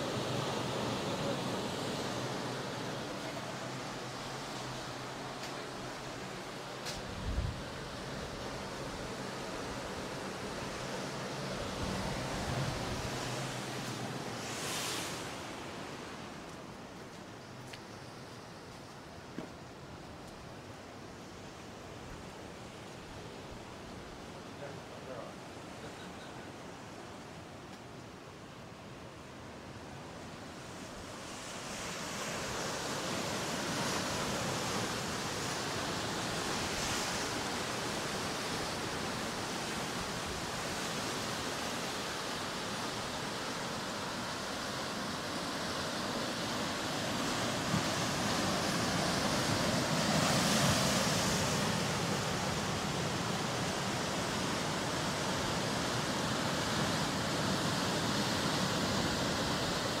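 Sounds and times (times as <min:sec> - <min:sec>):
ocean surf breaking: 0:00.0 - 0:16.8, 0:30.4 - 1:00.0.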